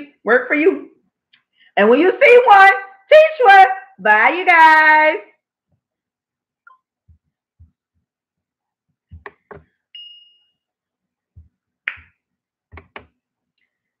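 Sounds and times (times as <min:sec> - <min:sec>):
high ping tone: 0:09.9 - 0:10.6.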